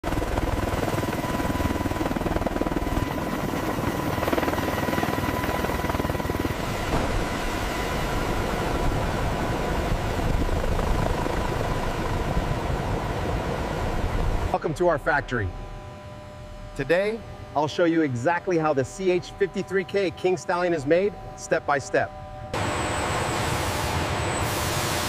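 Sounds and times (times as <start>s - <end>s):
helicopter rotor beating: 0.0s - 25.0s
steady high whine: 0.1s - 25.0s
engine noise rushing: 22.6s - 25.0s.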